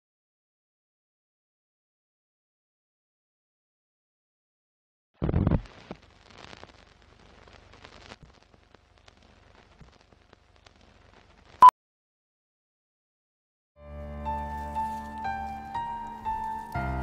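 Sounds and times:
film crackle with clicks: 5.2s - 11.7s, 14.3s - 17.0s.

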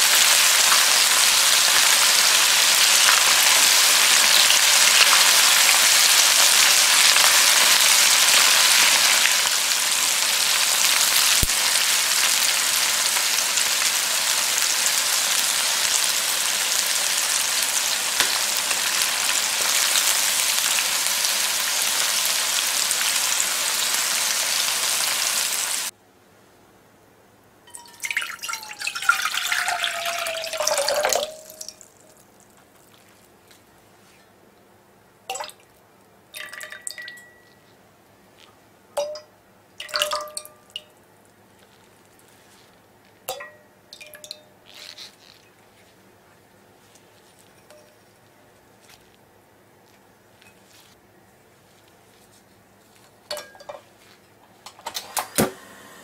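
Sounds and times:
chicken deep-frying in oil: 0.0s - 26.0s, 27.7s - 33.8s, 35.3s - 37.6s, 39.0s - 42.5s, 43.3s - 45.4s
water running into metal pot: 27.7s - 32.3s.

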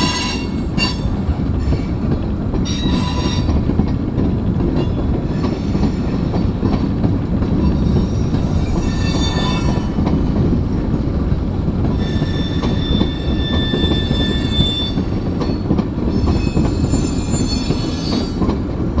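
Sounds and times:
train wheels rumbling on rail: 0.0s - 19.0s
high-pitched wheel squeal: 7.6s - 10.0s, 12.0s - 15.1s, 16.1s - 18.4s.

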